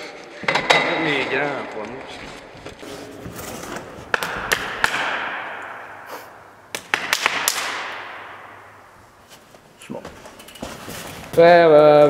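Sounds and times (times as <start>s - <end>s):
wheels rolling on a ramp: 0.0s - 4.2s, 10.1s - 12.0s
sharp knock: 4.1s - 8.8s.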